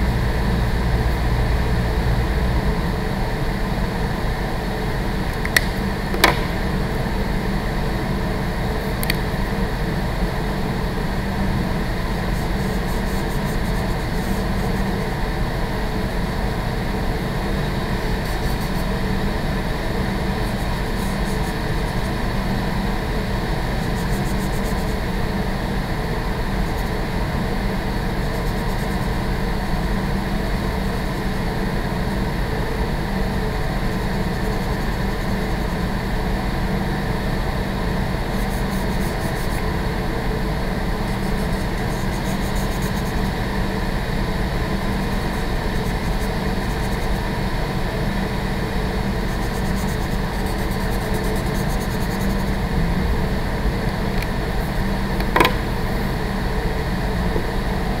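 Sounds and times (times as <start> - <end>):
ventilation system hum: 0.0 - 58.0
sharp click: 5.3 - 6.8, 55.2 - 55.8.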